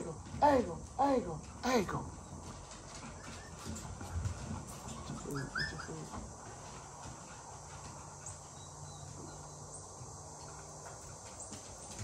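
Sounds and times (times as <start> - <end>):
puppies whimpering: 2.9 - 6.4.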